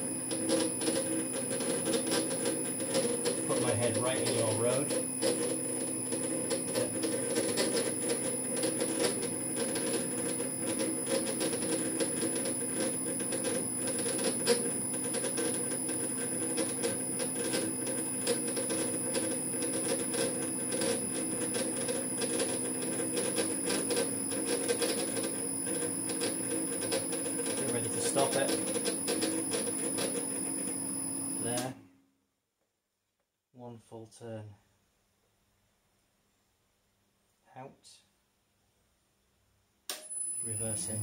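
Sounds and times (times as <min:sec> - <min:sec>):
metal lathe humming and whining: 0:00.0 - 0:31.6
rapid irregular ticking and clicking: 0:00.3 - 0:30.4.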